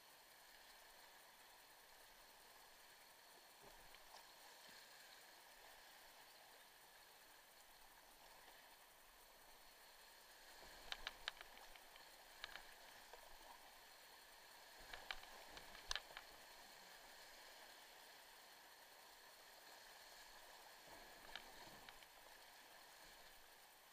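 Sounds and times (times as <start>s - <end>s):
sharp clicks: 10.9s - 12.8s, 14.8s - 16.3s.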